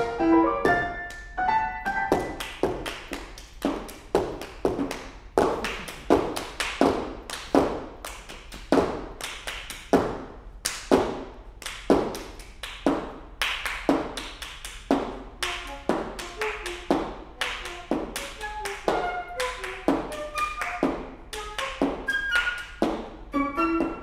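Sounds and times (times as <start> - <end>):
person clapping in reverberant hall: 0.0 - 24.0.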